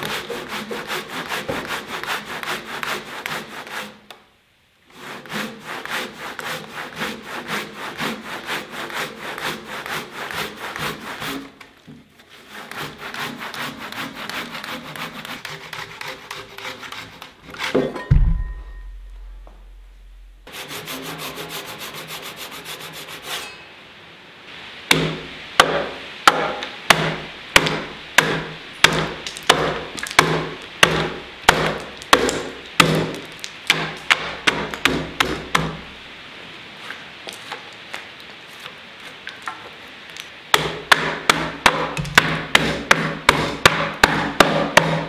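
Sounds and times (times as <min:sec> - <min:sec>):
hatchet chopping wood: 0:24.9 - 0:35.8, 0:40.5 - 0:45.0.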